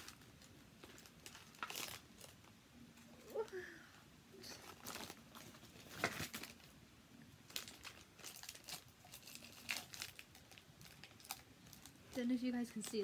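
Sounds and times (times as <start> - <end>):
wrapping paper crinkling: 0.0 - 2.5, 4.5 - 6.8, 7.4 - 13.0.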